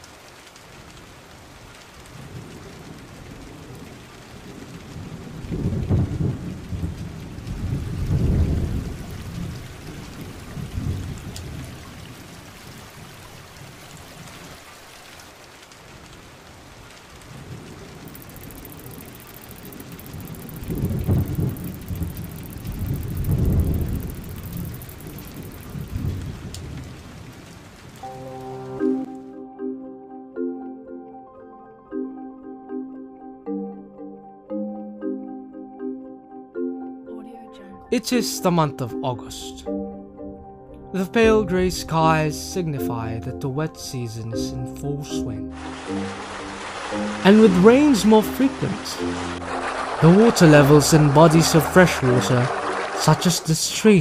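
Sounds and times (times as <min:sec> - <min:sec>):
steady rain falling: 0:00.0 - 0:29.3, 0:40.9 - 0:54.0
low rolls of thunder: 0:01.4 - 0:14.5, 0:15.9 - 0:28.0.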